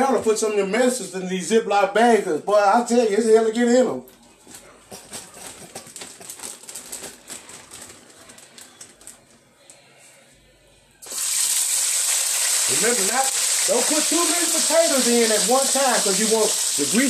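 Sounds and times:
plastic bag crinkling: 0:04.4 - 0:09.4
fries sizzling in hot grease: 0:11.0 - 0:17.0.

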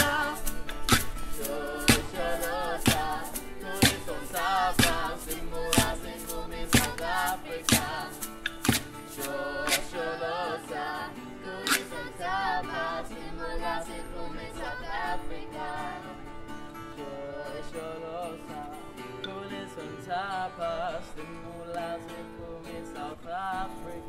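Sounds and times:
girl singing with vibrato: 0:00.0 - 0:16.4
acoustic guitar strumming: 0:00.0 - 0:24.0.

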